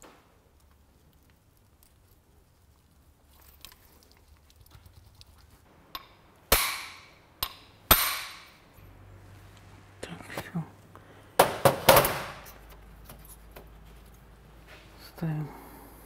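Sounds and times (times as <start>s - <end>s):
metal-on-metal strikes: 5.9s - 8.6s.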